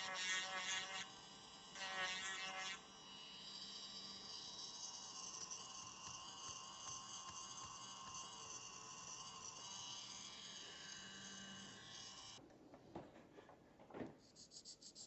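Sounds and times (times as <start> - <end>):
rotary tool grinding whine: 0.0 - 12.4.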